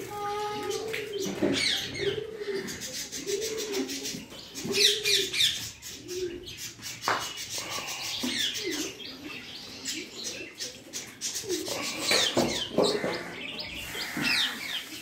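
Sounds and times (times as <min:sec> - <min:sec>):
low cooing bird call: 0:00.1 - 0:06.8, 0:07.4 - 0:15.0.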